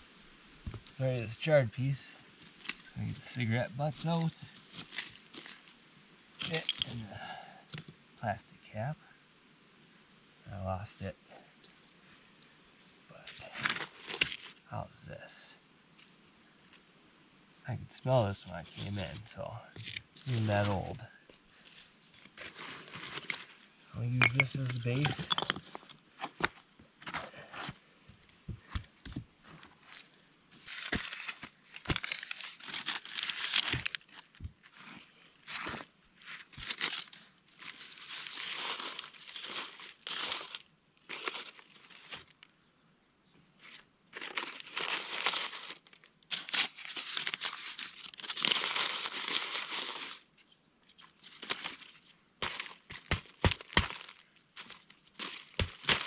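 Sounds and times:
paper tearing and crumpling: 19.8 - 20.9, 22.1 - 23.6, 30.6 - 34.4, 35.5 - 42.4, 44.1 - 50.2, 51.3 - 56.0.

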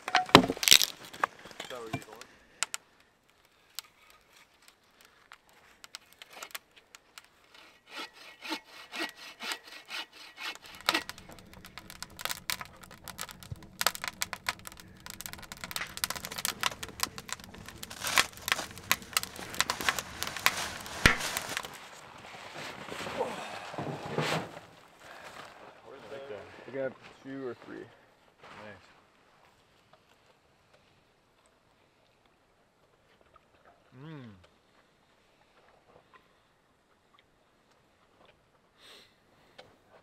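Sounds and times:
firewood crackling and popping: 0.0 - 7.6, 10.3 - 25.6
stove draft rushing: 10.2 - 22.0.

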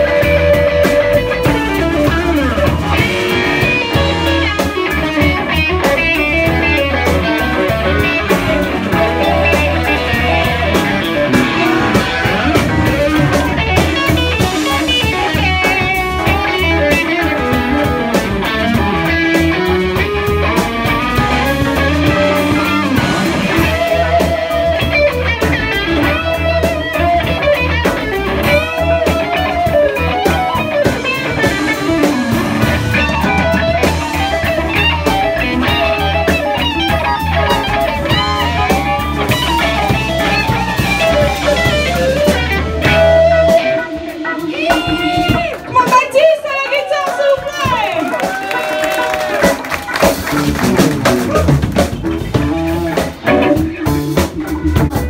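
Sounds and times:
drum kit: 0.0 - 55.0
electric guitar lead: 0.0 - 55.0.

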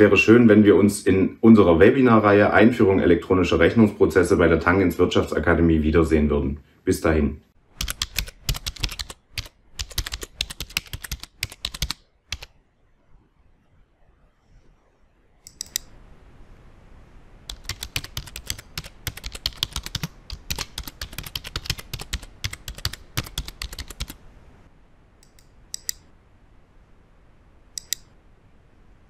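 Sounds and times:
computer keyboard typing: 7.8 - 12.5, 15.5 - 15.9, 17.5 - 24.2.

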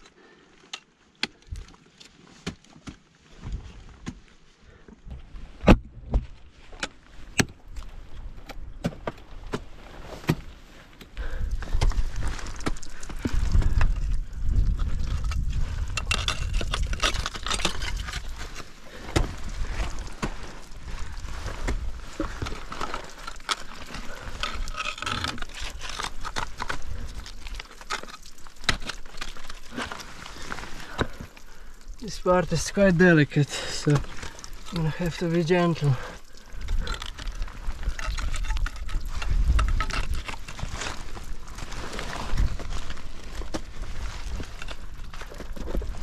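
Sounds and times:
scraping on ice: 15.1 - 20.7
ice axe striking ice: 15.5 - 20.4.

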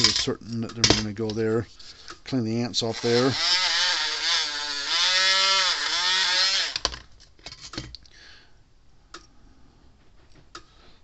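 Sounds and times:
pliers and metal connector clicking: 0.0 - 1.4.

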